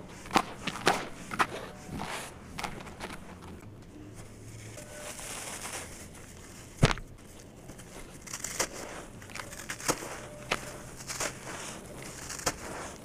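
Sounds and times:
gritty sand rustling: 0.0s - 13.0s
block crunching: 4.7s - 13.0s.

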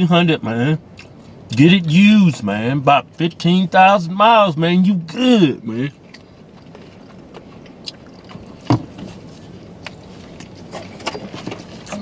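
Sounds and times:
people chewing food: 6.0s - 12.0s.

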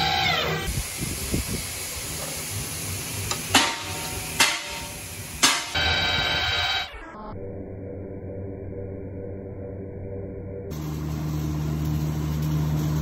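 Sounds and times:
steady workshop hiss: 0.7s - 5.8s
sharp metallic clanks: 3.3s - 5.9s.

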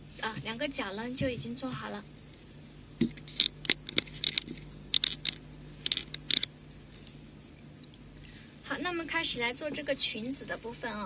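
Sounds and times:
beads clicking: 3.1s - 6.5s.

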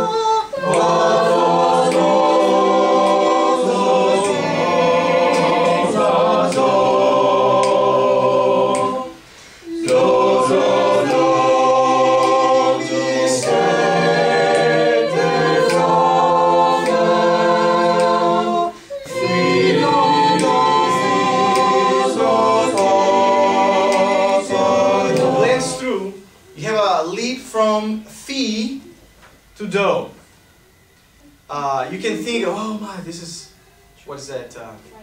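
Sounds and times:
choir singing a cappella: 0.0s - 26.4s.

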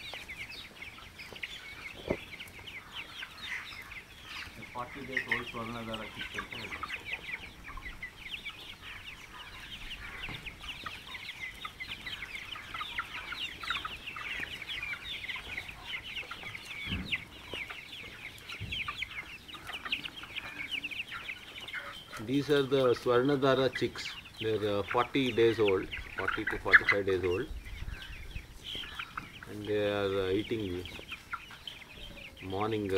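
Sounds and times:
chicks peeping: 0.0s - 32.9s.

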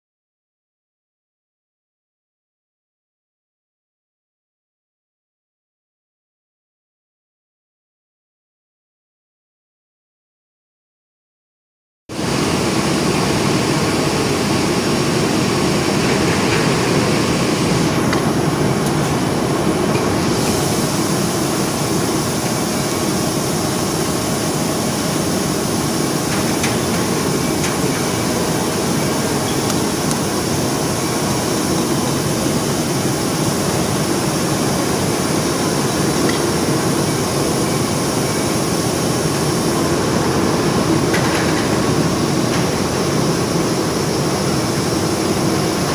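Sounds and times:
factory machinery hum: 12.1s - 45.9s.

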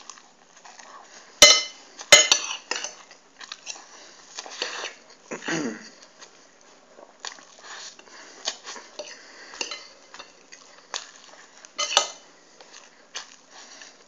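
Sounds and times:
cutlery clinking on a plate: 1.4s - 3.1s, 9.0s - 10.4s, 11.8s - 12.2s.

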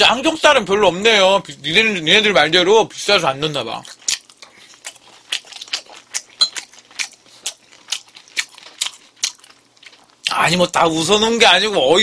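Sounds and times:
wet chewing smacks and clicks: 3.4s - 10.4s.

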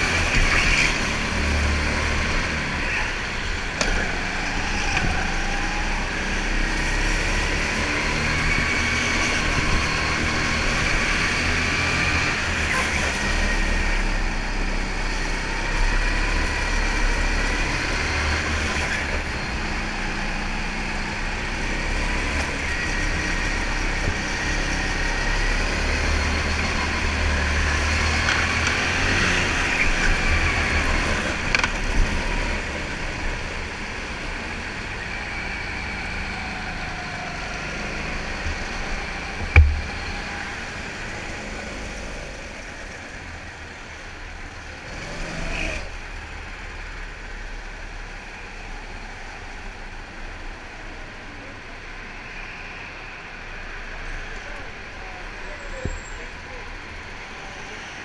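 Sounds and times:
go-kart motor revving: 0.0s - 43.2s, 44.5s - 47.2s
sharp knocks: 39.4s - 40.2s.

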